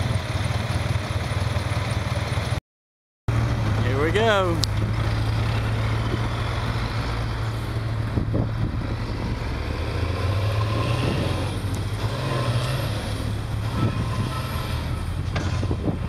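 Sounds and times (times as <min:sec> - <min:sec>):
diesel truck engine pulling hard: 0:03.3 - 0:16.0.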